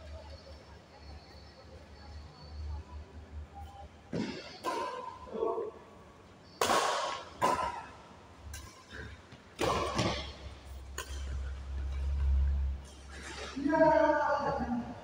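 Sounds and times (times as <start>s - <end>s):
badminton racket hitting shuttlecock: 6.6s - 7.9s, 9.6s - 11.6s.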